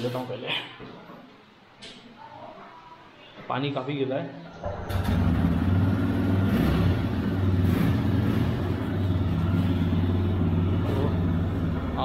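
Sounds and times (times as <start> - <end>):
motorcycle engine idling: 4.8 - 12.0.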